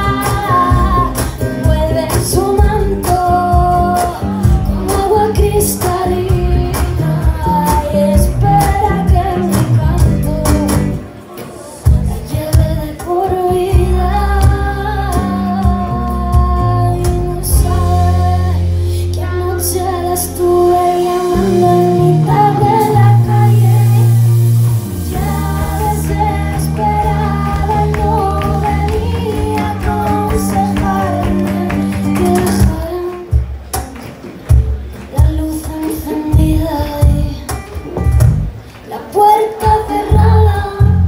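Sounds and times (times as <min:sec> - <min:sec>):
woman singing: 0:00.0 - 0:11.0, 0:11.7 - 0:33.4, 0:35.1 - 0:37.8, 0:38.9 - 0:41.0.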